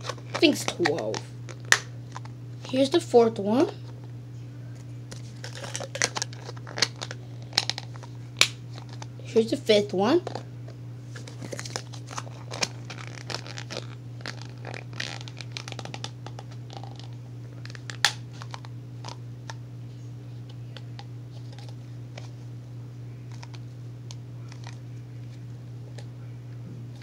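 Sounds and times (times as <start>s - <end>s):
plastic containers clicking and crinkling: 0.0s - 2.3s, 5.1s - 8.2s, 11.2s - 19.6s, 23.3s - 23.6s, 24.5s - 24.8s
steady low hum: 0.0s - 27.0s.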